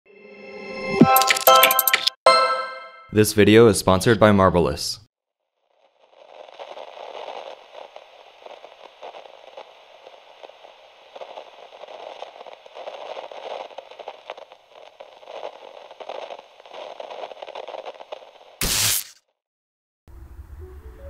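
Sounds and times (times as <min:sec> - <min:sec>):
crackling radio static: 0:05.8 - 0:19.1.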